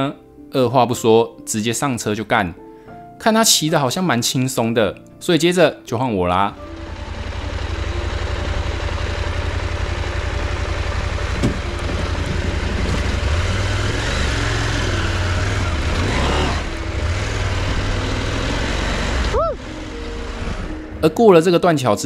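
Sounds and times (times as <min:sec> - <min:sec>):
motorcycle engine running: 0:06.6 - 0:21.2
sharp knock: 0:11.4 - 0:11.9.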